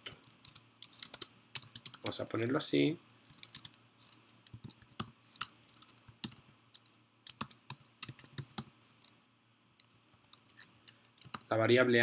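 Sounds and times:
typing on a keyboard: 0:00.2 - 0:02.2, 0:03.3 - 0:03.8, 0:04.5 - 0:09.1, 0:09.8 - 0:11.5.

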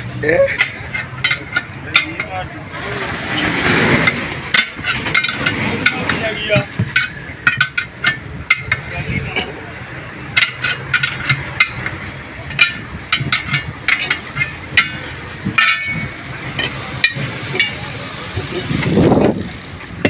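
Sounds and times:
metal rattle: 0:00.3 - 0:09.5, 0:10.3 - 0:20.0
tyre levers clinking on rim: 0:10.4 - 0:17.8.

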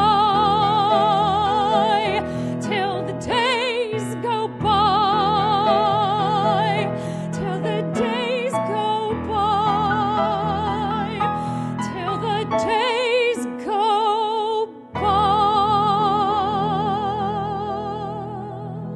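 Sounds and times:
piano accompaniment: 0:00.0 - 0:18.9
woman singing with vibrato: 0:00.0 - 0:18.9.

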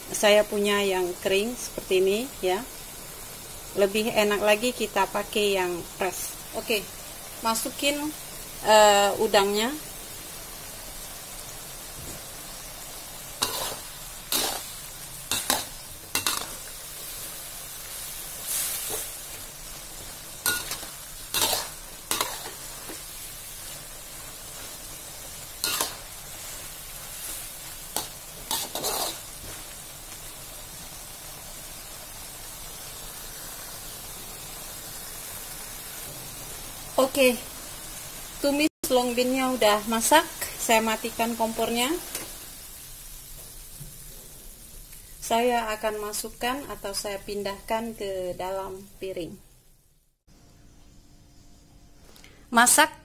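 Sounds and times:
beans sizzling in oil: 0:00.0 - 0:52.8
spatula scraping metal wok: 0:13.4 - 0:16.7, 0:20.4 - 0:23.7, 0:27.1 - 0:29.7.

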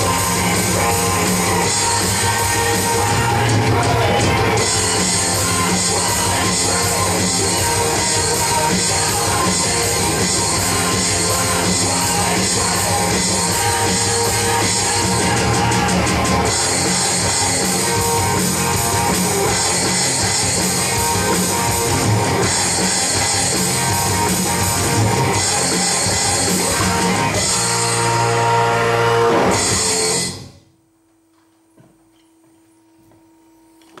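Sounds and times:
electronic drum kit: 0:00.0 - 0:30.4
hard rock song: 0:00.0 - 0:30.5.

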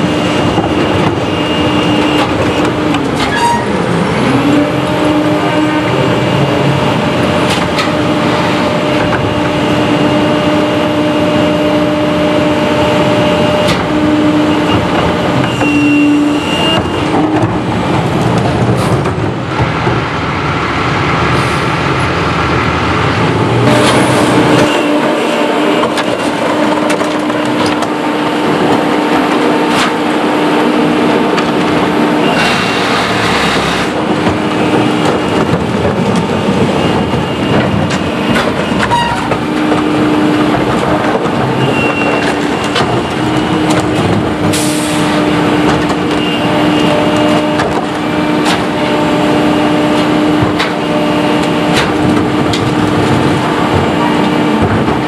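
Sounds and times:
hydraulic whine: 0:00.0 - 0:17.5, 0:27.2 - 0:35.7
truck engine running: 0:00.0 - 0:55.0.

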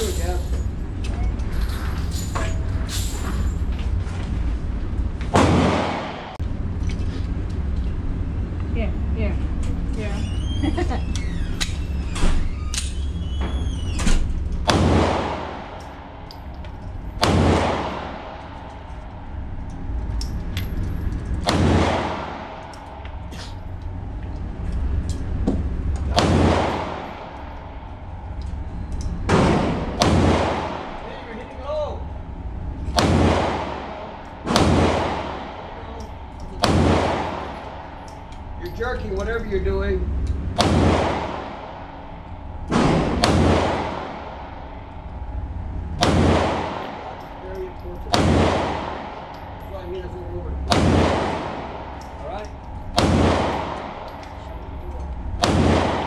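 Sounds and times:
pistol shots echoing indoors: 0:05.3 - 0:06.4, 0:14.6 - 0:20.5, 0:21.3 - 0:24.0, 0:26.1 - 0:31.1, 0:32.8 - 0:38.8, 0:40.5 - 0:47.4, 0:48.0 - 0:49.7, 0:50.6 - 0:56.0.

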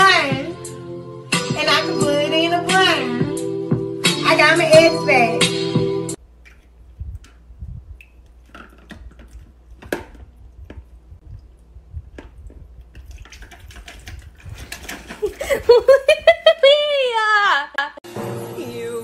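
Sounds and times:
small water splashes and drips: 0:06.4 - 0:07.4, 0:08.0 - 0:15.2.

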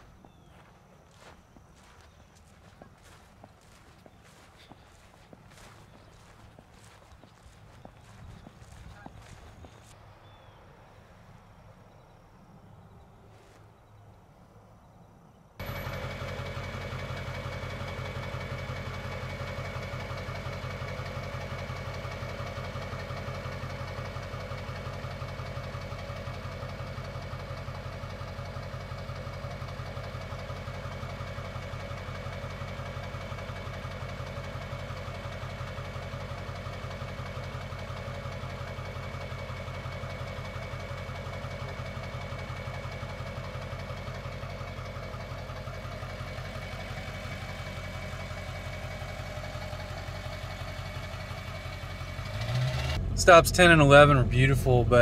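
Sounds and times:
vehicle engine idling: 0:00.0 - 0:55.0.

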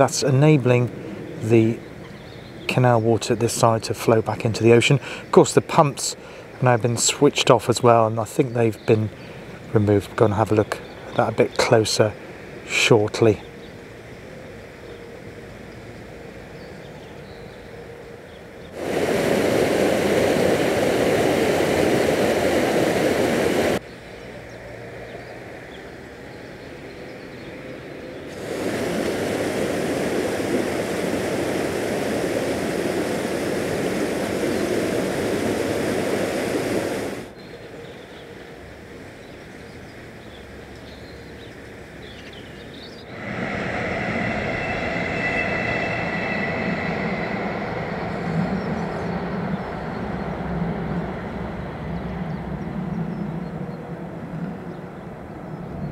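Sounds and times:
train passing: 0:03.5 - 0:27.0, 0:27.6 - 0:37.3, 0:43.0 - 0:55.9
water rushing through a gap: 0:18.8 - 0:23.8, 0:28.3 - 0:37.3
train wheels squealing: 0:43.2 - 0:50.2.

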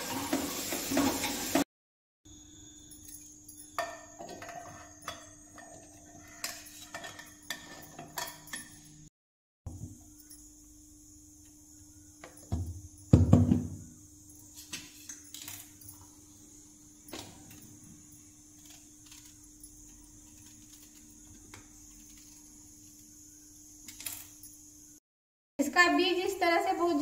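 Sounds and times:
heavy knocks on stone counter: 0:12.5 - 0:13.8.

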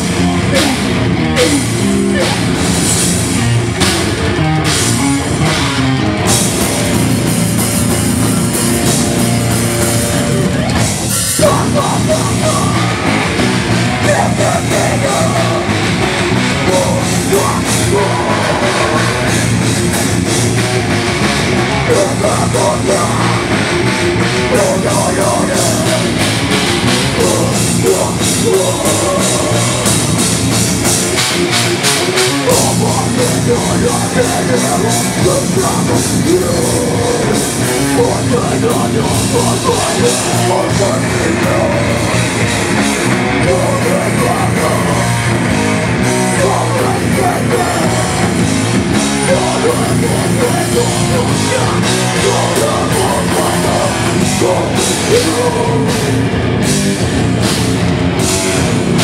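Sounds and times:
live punk band playing: 0:00.0 - 0:59.0
shouted vocals: 0:14.0 - 0:15.7, 0:16.6 - 0:19.4, 0:24.5 - 0:26.2, 0:46.1 - 0:48.4, 0:49.1 - 0:56.2.

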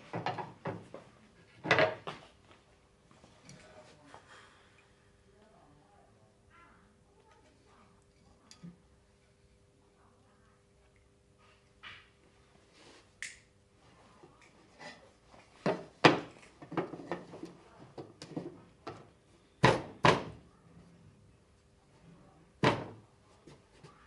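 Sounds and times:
wooden boards knocking and clacking: 0:15.6 - 0:18.6, 0:19.6 - 0:20.3.

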